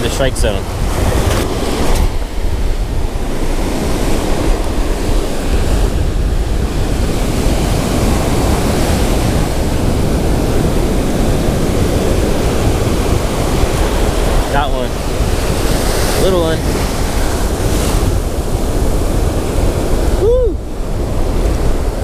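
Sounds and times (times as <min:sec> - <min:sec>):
ocean surf breaking on beach: 0:00.0 - 0:22.0
wind buffeting microphone: 0:00.0 - 0:22.0.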